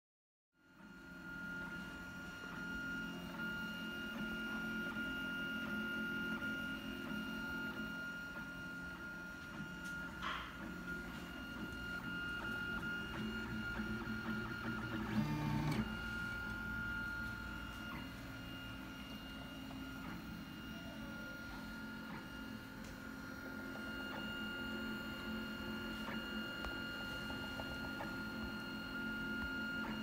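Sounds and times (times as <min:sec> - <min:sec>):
stepper motors humming: 0:06.3 - 0:30.0.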